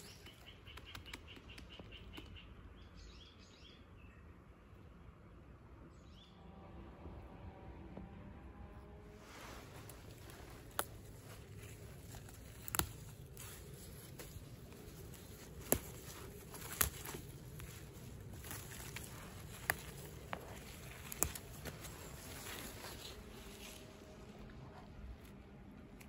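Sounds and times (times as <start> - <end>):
rustling of dry leaves: 8.9 - 26.0
plant stems snapping: 9.8 - 23.9.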